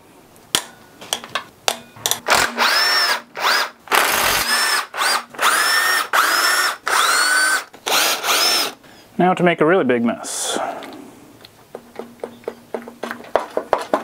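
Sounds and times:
power tool motor whine: 2.3 - 8.8.

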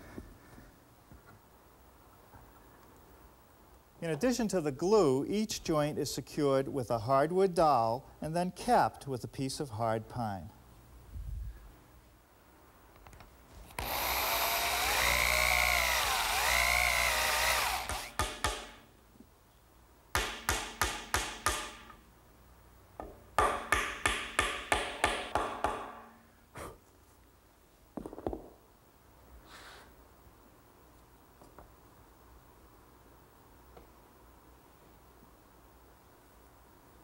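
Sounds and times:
electric drill boring wood: 13.7 - 18.6
sharp taps driving dowels: 17.8 - 18.8, 20.2 - 22.0, 23.0 - 26.0.

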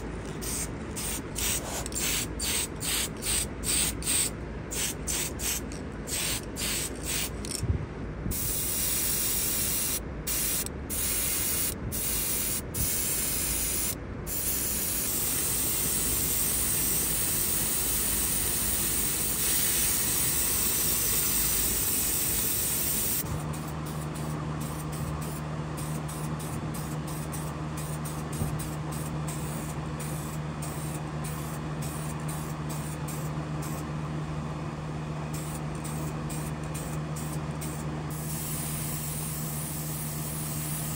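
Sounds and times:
constant low hum: 0.0 - 40.9
airbrush spraying hiss: 0.3 - 7.5, 8.3 - 33.8, 35.4 - 40.9.

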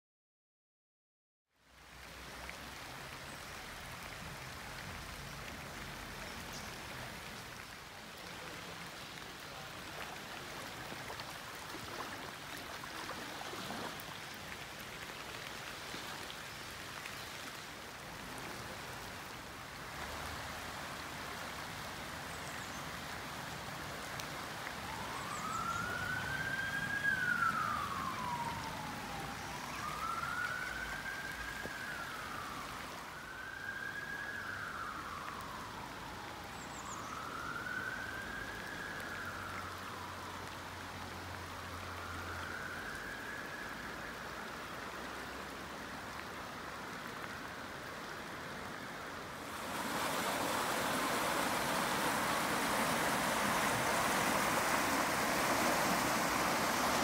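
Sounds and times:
rain: 1.5 - 57.0
stream rushing: 1.7 - 57.0
emergency siren wailing: 24.4 - 44.4, 49.3 - 57.0.

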